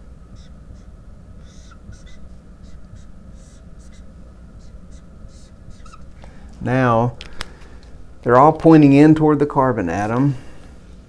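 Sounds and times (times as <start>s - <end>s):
marker squeaks: 0.3s - 6.1s
marker scratching on whiteboard: 0.4s - 6.1s.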